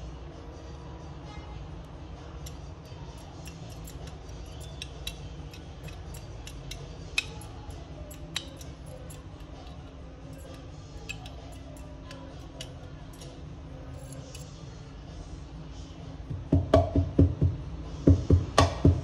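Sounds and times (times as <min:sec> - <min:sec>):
steady low hum: 0:00.0 - 0:19.0
metal tool clicking against basket: 0:02.3 - 0:14.6.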